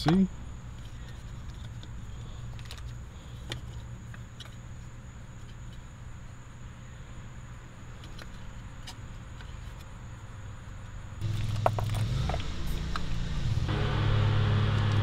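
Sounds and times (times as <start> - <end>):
low workshop hum: 0.0 - 15.0.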